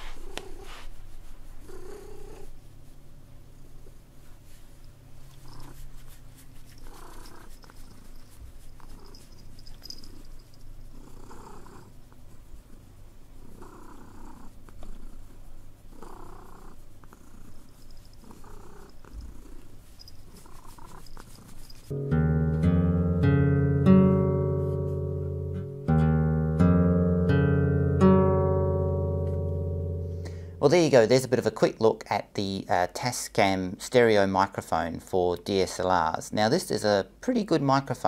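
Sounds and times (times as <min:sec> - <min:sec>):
cat purring: 0:00.0 - 0:04.6, 0:05.2 - 0:21.9.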